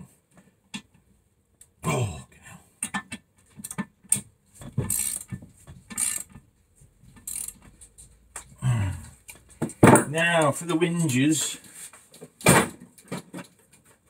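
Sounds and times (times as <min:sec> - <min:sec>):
ratchet wrench clicking: 0:04.9 - 0:05.3, 0:05.9 - 0:06.4, 0:07.2 - 0:07.7.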